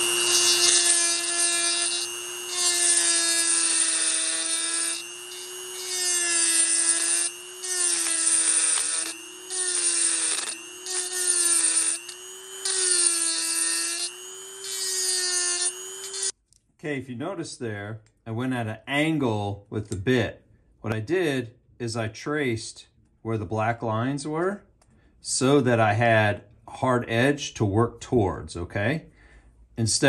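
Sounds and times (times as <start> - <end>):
bit grinding metal: 0.0 - 16.3
rotary tool motor whining: 0.0 - 16.4.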